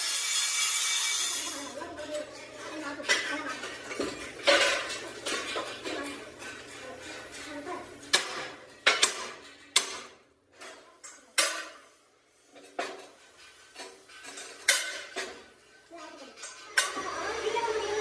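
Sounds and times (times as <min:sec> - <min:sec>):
heavy steel parts clanking: 0:01.1 - 0:11.6.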